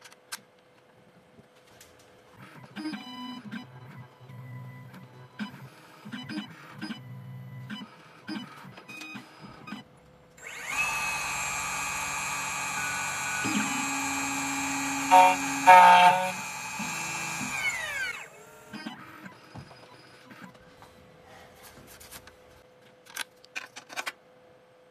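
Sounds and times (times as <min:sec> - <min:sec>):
cutter spindle high whine: 0:10.4 - 0:18.4
machine axis whirring: 0:10.4 - 0:20.5.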